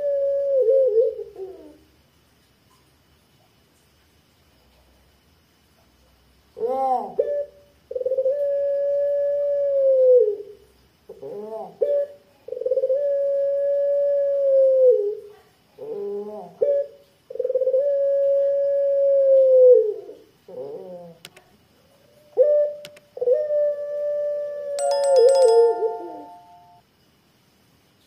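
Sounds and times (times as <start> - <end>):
dove cooing: 0.0 - 1.8, 6.6 - 15.2, 15.8 - 21.2, 22.3 - 26.6.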